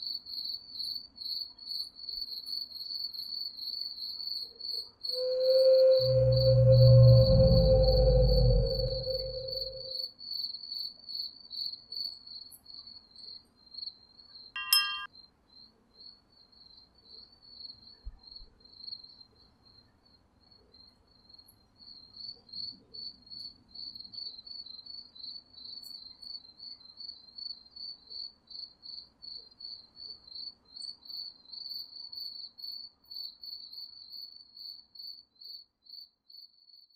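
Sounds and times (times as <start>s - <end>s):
crickets chirping: 5.0s - 10.1s
short ringing note: 5.2s - 10.0s, 14.6s - 15.1s.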